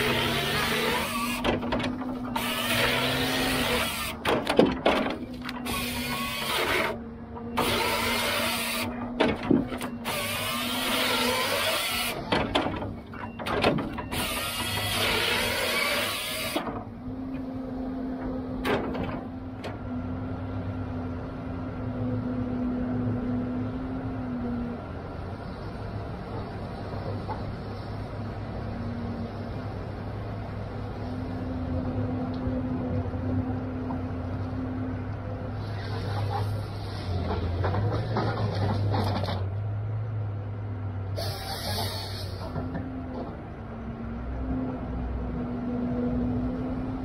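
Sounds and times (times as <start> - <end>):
chainsaw cutting through logs: 0.0 - 1.4, 2.3 - 4.2, 5.6 - 7.0, 7.6 - 9.0, 10.0 - 12.2, 14.1 - 16.6
loader engine running: 0.0 - 47.0.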